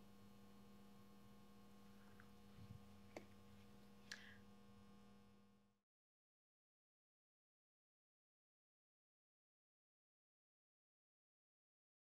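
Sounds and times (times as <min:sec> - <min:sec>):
faint electrical hum: 0:00.0 - 0:05.8.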